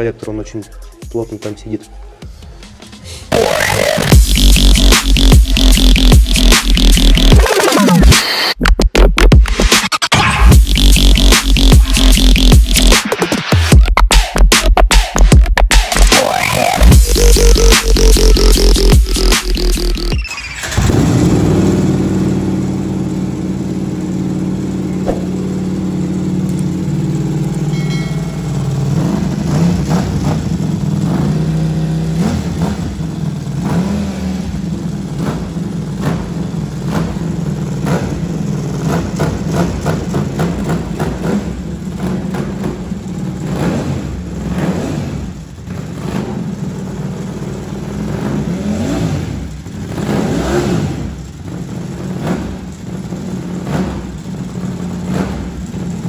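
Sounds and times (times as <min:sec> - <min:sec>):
throttle blips revving engine: 0:03.3 - 0:08.6, 0:10.1 - 0:14.3, 0:14.9 - 0:56.0
motorcycle engine idling: 0:21.0 - 0:56.0.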